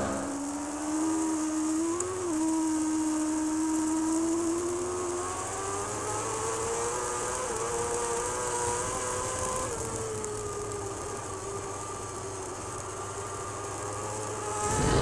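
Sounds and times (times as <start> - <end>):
motorcycle engine at high revs: 0.0 - 15.0
wind rushing: 14.6 - 15.0.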